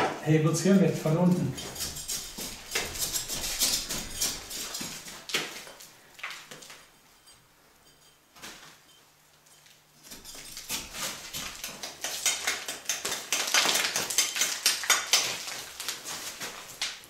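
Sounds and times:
stone block grating and scraping: 1.4s - 4.9s.

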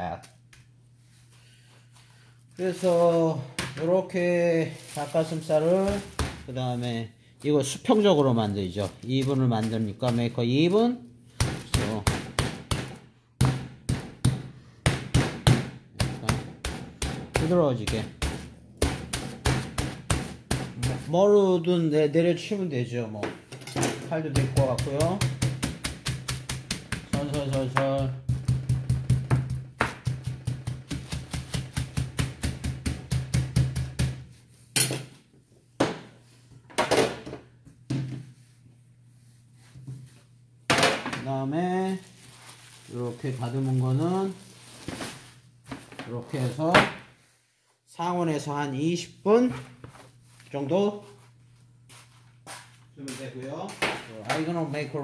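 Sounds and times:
meat pounder dull strikes: 11.4s - 21.2s, 24.3s - 34.3s.

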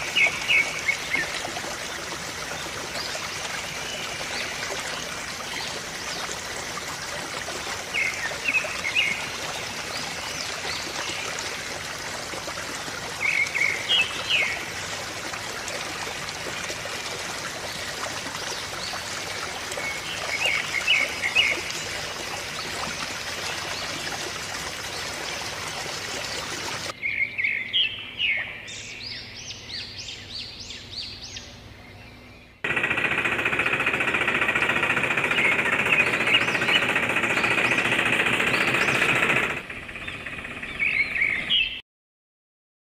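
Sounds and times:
birds chirping: 0.0s - 6.8s, 7.4s - 11.6s, 13.0s - 14.8s, 24.8s - 41.8s
running water: 0.0s - 27.0s, 32.6s - 39.7s
rattling small motor: 32.7s - 40.8s
bird calling: 35.1s - 41.8s.

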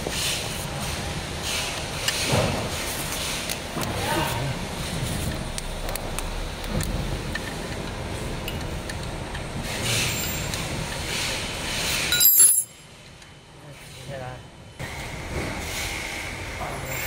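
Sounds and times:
spanner clinking on concrete floor: 12.1s - 13.3s.

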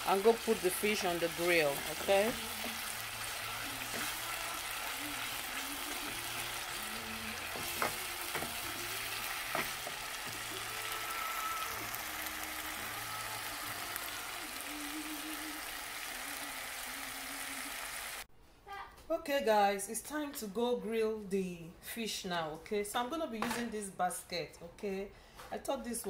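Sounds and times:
sauce sizzling in a pan: 0.0s - 18.3s
wooden spoon knocking pan: 7.5s - 8.6s, 9.4s - 10.4s.

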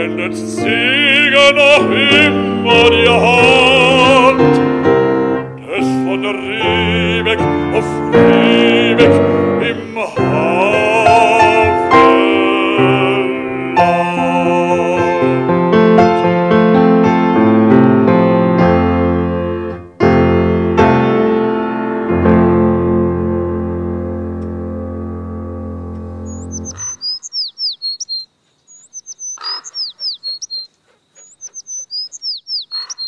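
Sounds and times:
baritone singing with vibrato: 0.0s - 17.0s
grand piano playing: 0.0s - 27.0s.

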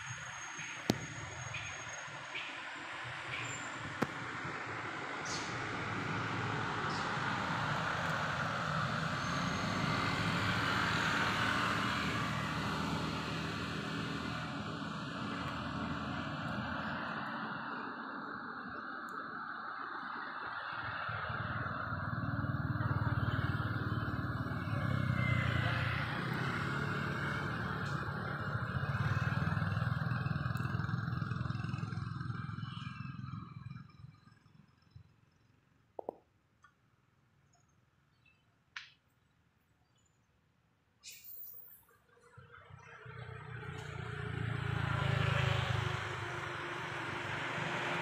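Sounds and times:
engine rumbling: 3.3s - 17.5s, 21.0s - 36.2s.

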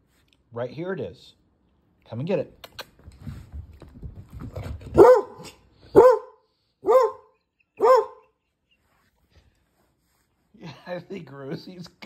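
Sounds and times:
dog barking: 5.0s - 8.4s.

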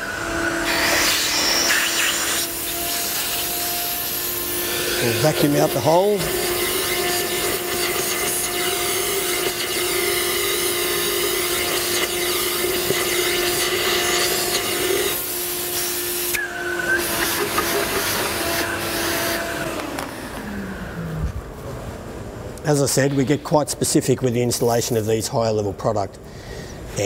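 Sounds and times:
industrial vacuum whining: 0.0s - 24.9s
vacuum hose sucking hiss: 0.6s - 6.4s.

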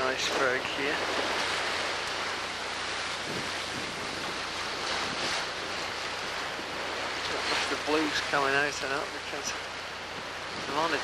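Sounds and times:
waves breaking: 0.0s - 11.0s
wind buffeting microphone: 0.0s - 11.0s
wind rushing: 2.7s - 6.0s.

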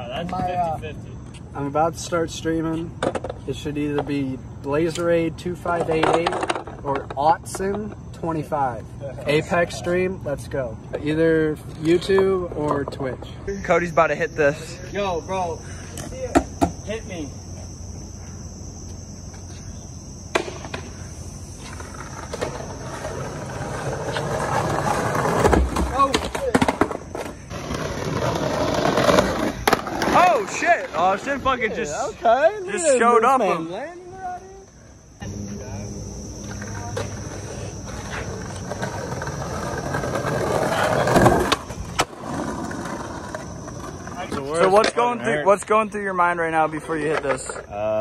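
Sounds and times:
high insect trill: 0.0s - 48.0s
skateboard wheels rolling over bricks: 5.6s - 8.0s, 20.3s - 32.1s, 35.3s - 45.4s.

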